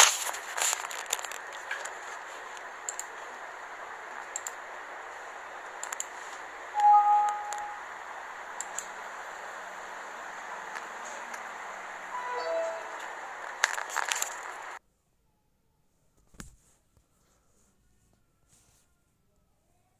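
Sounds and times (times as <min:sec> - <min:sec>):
faint clicks: 0:00.0 - 0:03.3, 0:04.2 - 0:04.6, 0:05.8 - 0:07.6, 0:08.6 - 0:09.0
steady hiss: 0:00.0 - 0:14.8
short steady beep: 0:06.8 - 0:07.8.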